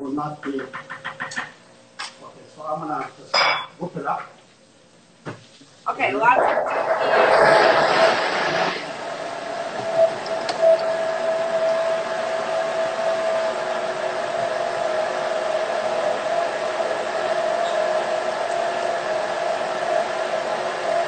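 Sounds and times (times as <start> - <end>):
blender motor whining: 6.7 - 21.0.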